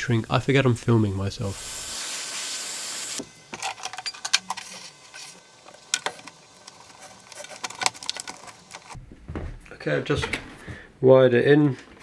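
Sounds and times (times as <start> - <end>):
hands handling cable clicking: 5.9 - 9.0.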